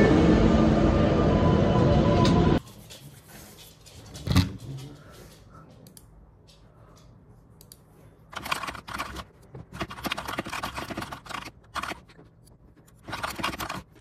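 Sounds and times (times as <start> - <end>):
mechanical keyboard typing: 8.3 - 12.2, 13.0 - 14.0.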